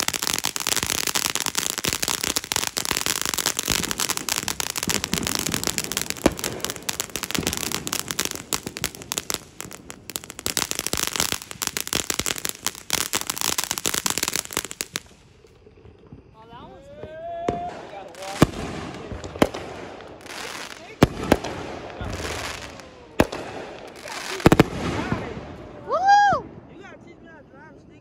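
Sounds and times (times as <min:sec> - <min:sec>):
firework fountain crackling: 0:00.0 - 0:28.0.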